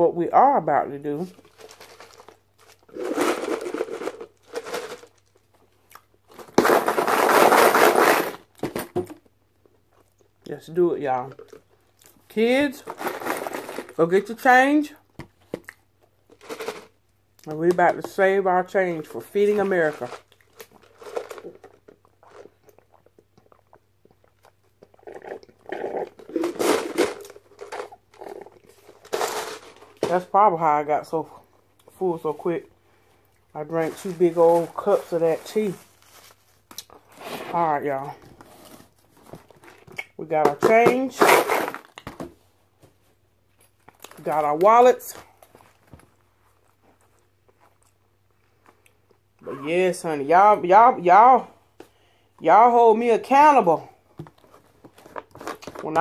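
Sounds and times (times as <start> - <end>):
plastic bag crinkling: 1.2 - 5.5, 12.7 - 14.1, 19.2 - 23.0, 33.6 - 37.7
drink cup rattling: 1.4 - 5.2, 16.3 - 17.0, 19.2 - 23.0, 25.0 - 30.3
person slurping and gulping: 21.4 - 26.9, 27.9 - 28.8.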